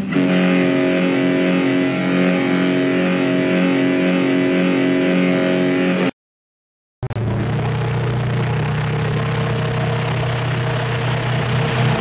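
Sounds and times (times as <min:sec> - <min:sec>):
ship's horn blast: 0:00.0 - 0:06.2.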